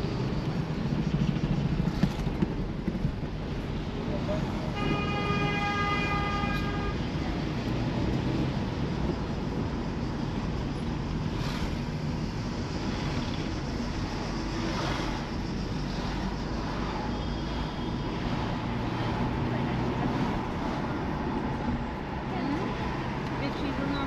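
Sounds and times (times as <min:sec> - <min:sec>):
vehicle running rumble: 0:00.0 - 0:05.1
rushing noise: 0:00.0 - 0:23.8.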